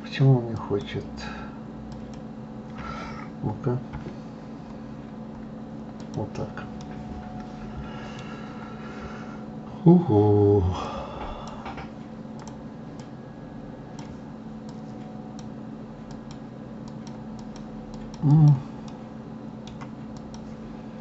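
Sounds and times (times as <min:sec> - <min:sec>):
low steady hum: 0:00.0 - 0:21.0
mouse and keys clicking: 0:01.9 - 0:02.3, 0:06.0 - 0:07.5, 0:12.4 - 0:13.2, 0:13.9 - 0:19.0, 0:19.6 - 0:20.6.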